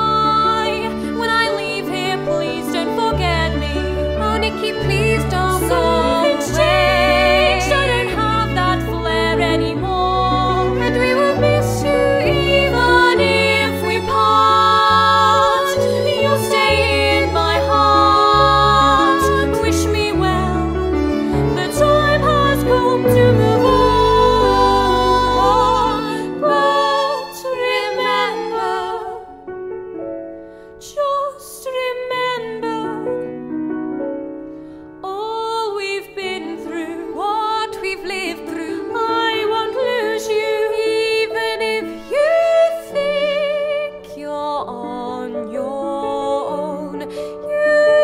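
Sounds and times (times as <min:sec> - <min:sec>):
piano accompaniment: 0:00.0 - 0:48.0
voices singing held notes: 0:04.3 - 0:29.2.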